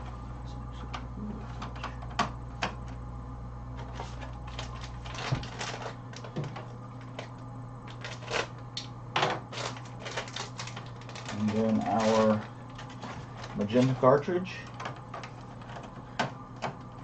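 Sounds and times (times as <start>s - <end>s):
low steady hum: 0.0s - 17.0s
rustling cartridge box: 3.8s - 8.6s, 9.2s - 17.0s.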